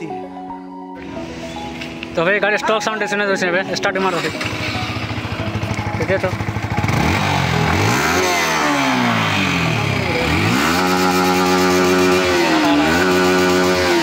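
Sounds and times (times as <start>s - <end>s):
motorcycle engine revving: 3.7s - 14.0s.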